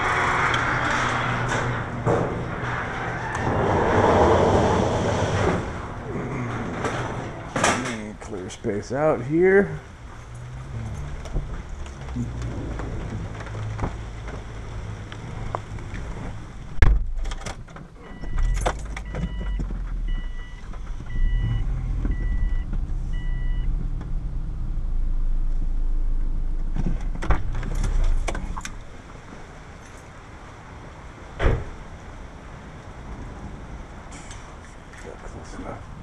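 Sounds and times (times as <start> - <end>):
car door thudding shut: 31.4 - 31.8.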